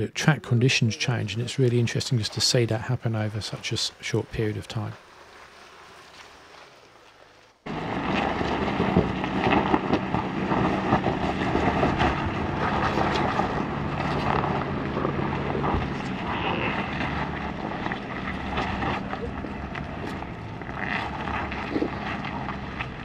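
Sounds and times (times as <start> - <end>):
diesel engine pulling under load: 7.7 - 23.0
stones clicking under tyres: 8.0 - 23.0.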